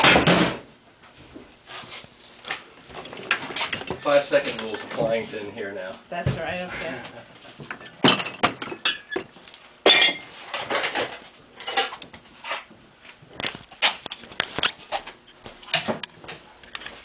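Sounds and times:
glassware clinking: 7.7s - 10.3s.

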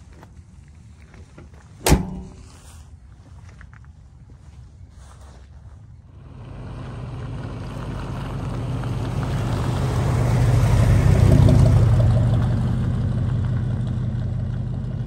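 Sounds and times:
truck engine driving past: 6.1s - 15.0s.

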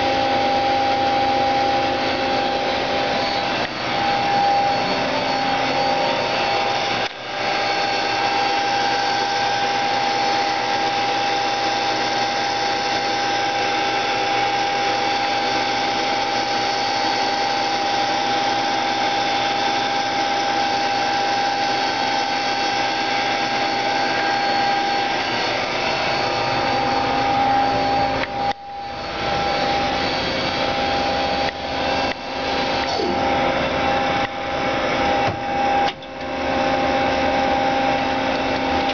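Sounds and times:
lathe machine whine: 0.0s - 38.9s.

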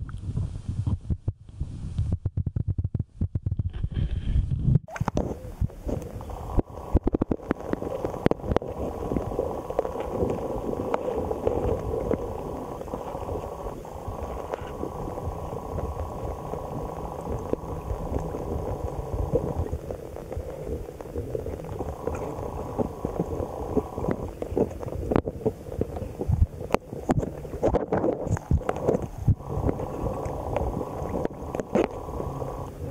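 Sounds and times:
muffled underwater gurgling rumble: 0.0s - 32.9s.

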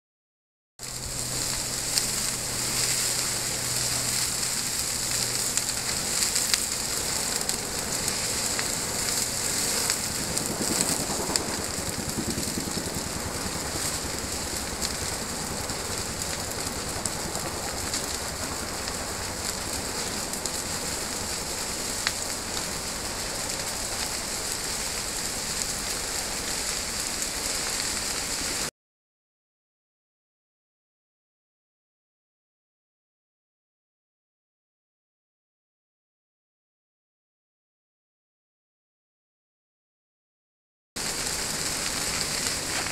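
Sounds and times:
fire crackling: 0.8s - 28.7s, 41.0s - 42.9s
sharp pops of burning wood: 0.9s - 28.4s, 41.0s - 42.9s.

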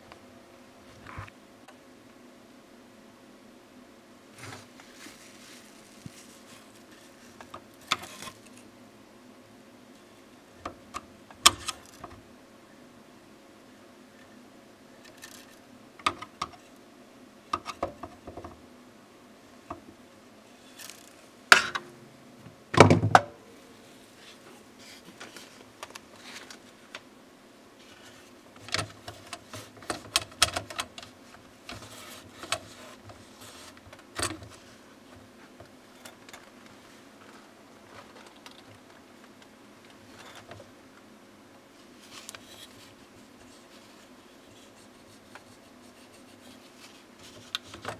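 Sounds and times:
printer carriage plastic clicks and rattles: 28.6s - 31.1s.

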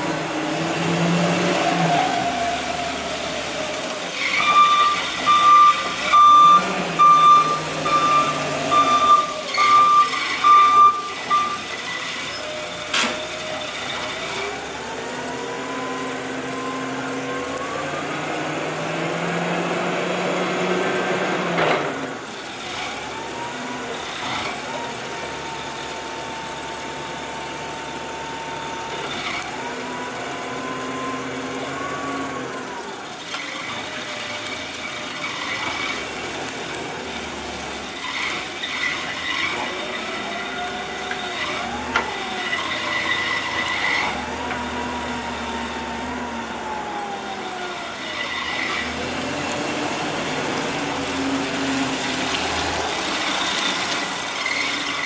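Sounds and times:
forklift engine running: 0.0s - 55.0s
reversing alarm beeping: 4.3s - 11.7s.

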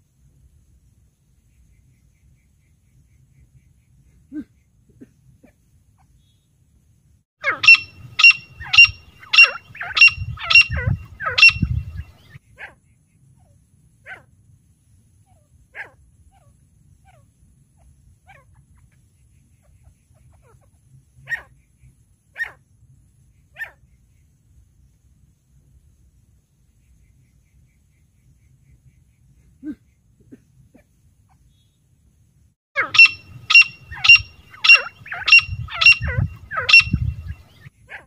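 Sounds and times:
francolin calling: 7.4s - 12.4s, 32.8s - 37.7s.

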